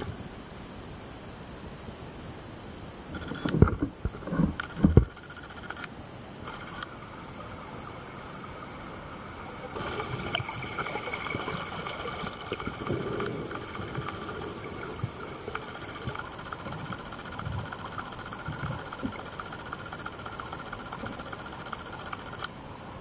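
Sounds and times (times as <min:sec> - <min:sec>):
underwater hiss and rumble: 0:00.0 - 0:23.0
faint underwater clicks: 0:03.2 - 0:08.2, 0:09.4 - 0:22.6.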